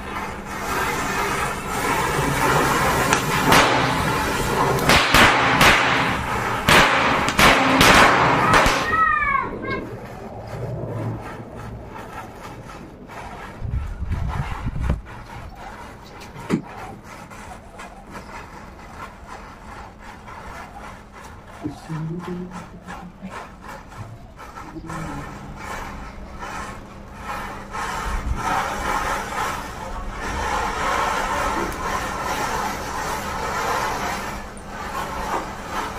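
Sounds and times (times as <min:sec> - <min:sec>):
sharp pops: 0:03.0 - 0:09.2.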